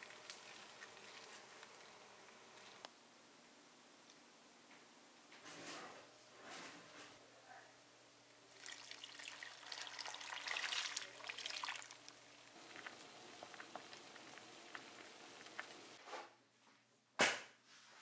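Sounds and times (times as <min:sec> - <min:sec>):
broth pouring and splashing: 0:08.5 - 0:16.0.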